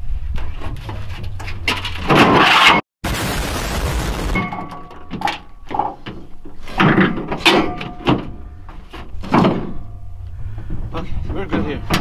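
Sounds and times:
metal cylinder knocks and clunks: 0:04.4 - 0:12.0.

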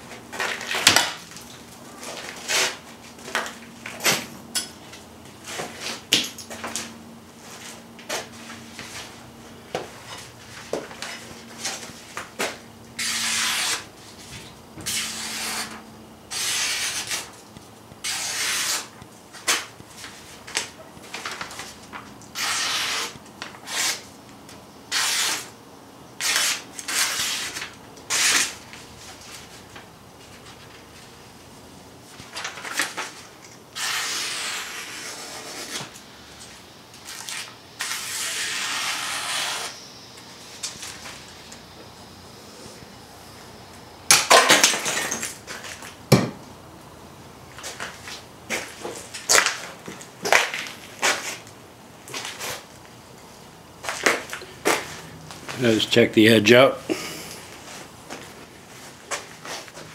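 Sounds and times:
knife slicing through paper: 0:13.0 - 0:13.9, 0:14.9 - 0:17.4, 0:18.0 - 0:18.9, 0:22.4 - 0:24.0, 0:33.8 - 0:35.9, 0:37.1 - 0:39.8.

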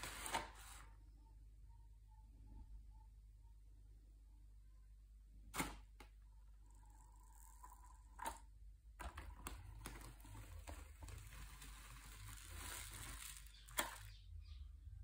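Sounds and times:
grains sliding and trickling: 0:10.0 - 0:14.1.

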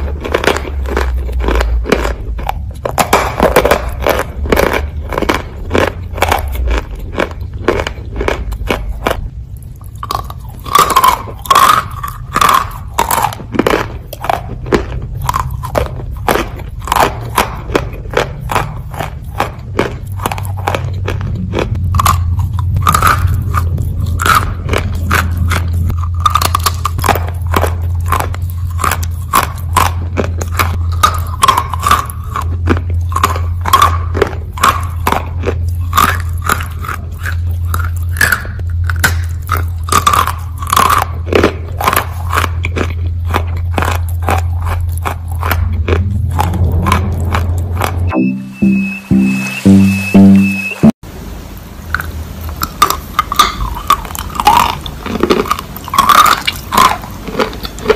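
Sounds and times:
crunchy chewing: 0:00.0 - 0:48.4, 0:52.0 - 0:57.9
steady low hum: 0:00.0 - 0:57.9.

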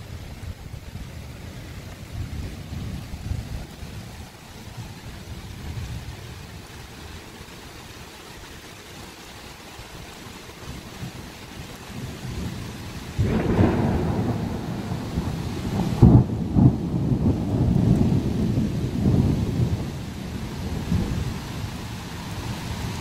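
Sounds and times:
steady rain: 0:00.0 - 0:23.0
thunder rumbling: 0:11.9 - 0:23.0
sharp thunder cracks: 0:13.2 - 0:19.8.

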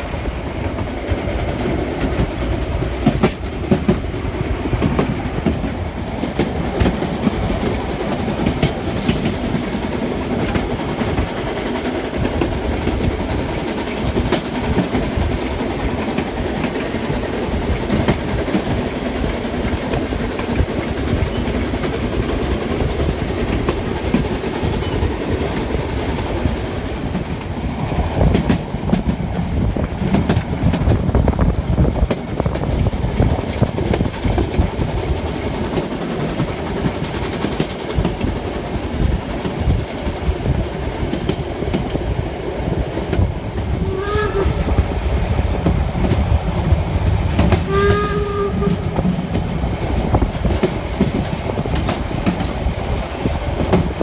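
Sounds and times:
train wheels clickety-clack: 0:00.0 - 0:54.0
steam locomotive whistle toots: 0:43.8 - 0:44.8, 0:47.6 - 0:49.1.

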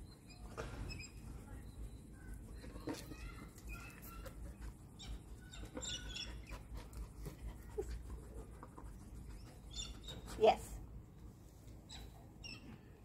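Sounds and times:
dog panting: 0:02.5 - 0:10.8
bird chirps: 0:09.4 - 0:10.3.

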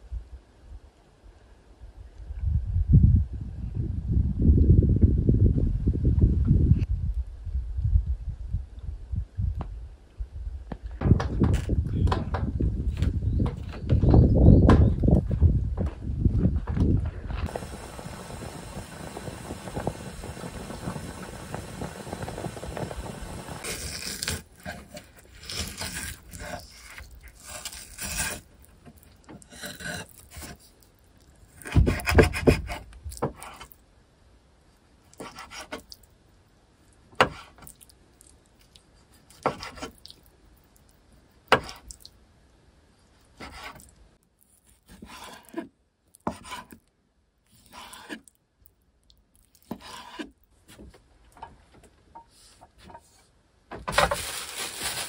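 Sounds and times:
water boiling and bubbling: 0:17.5 - 0:24.5.

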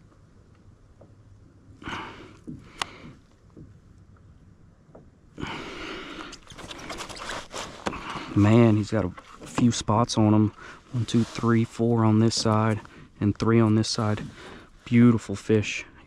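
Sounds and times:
handling rustle: 0:06.1 - 0:15.1.

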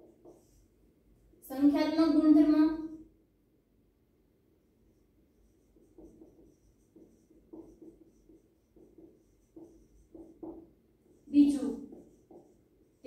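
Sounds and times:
marker scratching on whiteboard: 0:00.0 - 0:01.8, 0:04.9 - 0:13.0.

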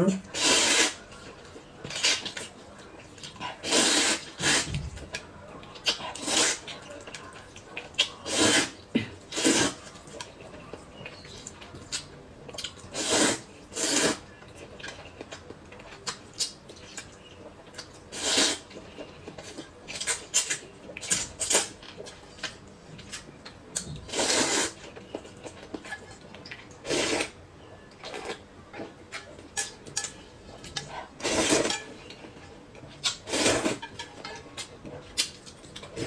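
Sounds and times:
noodles slurped: 0:00.3 - 0:01.1, 0:03.6 - 0:04.7, 0:08.0 - 0:09.8, 0:12.8 - 0:14.2, 0:18.1 - 0:18.7.

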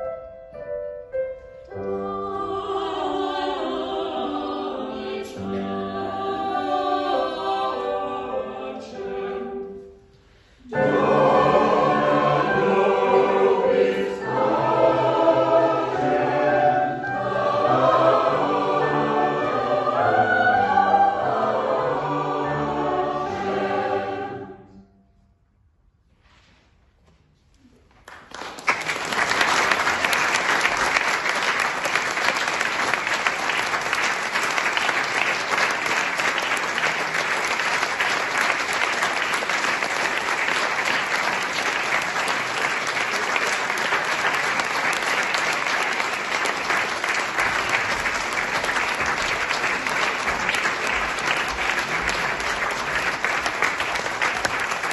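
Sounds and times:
audience applauding: 0:28.0 - 0:54.9.

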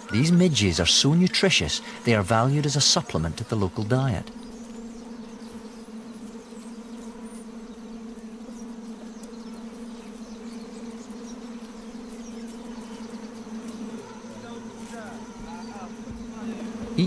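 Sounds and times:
midge swarm buzzing: 0:00.0 - 0:17.0.

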